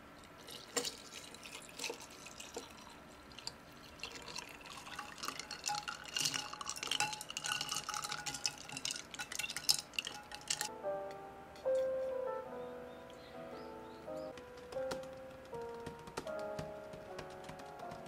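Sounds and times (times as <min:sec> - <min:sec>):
coffee poured over ice: 0:00.4 - 0:10.7
spoon stirring ice in glass: 0:00.5 - 0:10.7.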